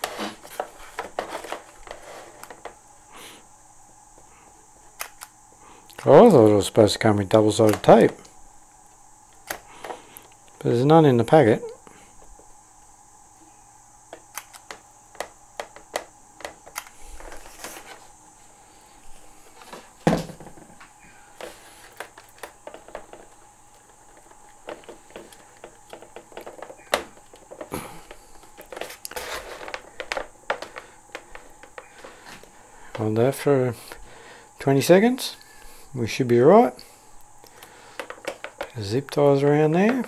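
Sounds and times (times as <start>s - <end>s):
faint steady hum: 0.0s - 40.0s
hands handling plastic parts: 19.6s - 33.1s.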